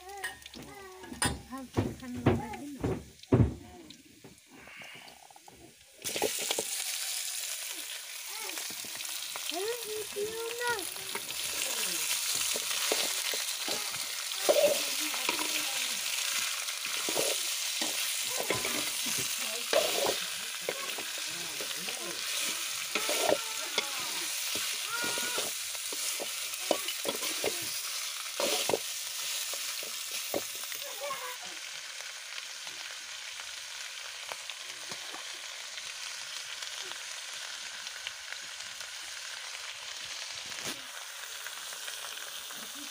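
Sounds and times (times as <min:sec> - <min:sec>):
chicken sizzling in oil: 0:00.0 - 0:42.9
spatula scraping pan: 0:11.1 - 0:30.6.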